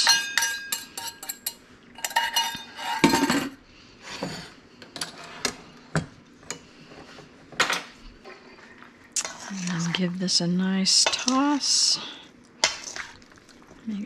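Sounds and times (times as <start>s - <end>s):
metal utensil clinking on dish: 0.0s - 3.5s.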